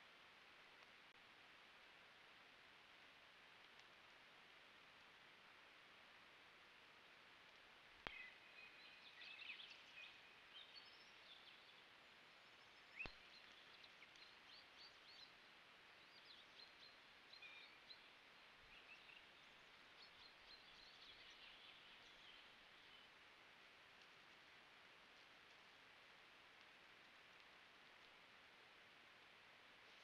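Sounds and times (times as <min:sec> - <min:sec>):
songbirds chirping: 0:00.0 - 0:30.0.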